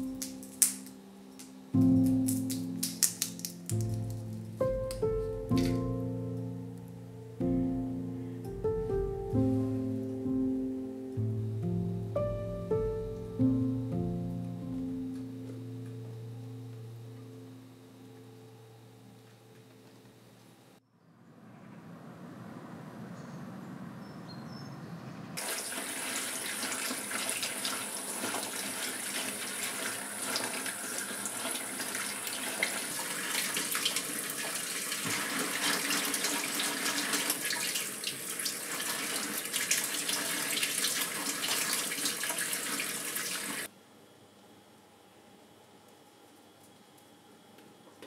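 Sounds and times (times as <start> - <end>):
kitchen tap running: 25.4 - 43.7.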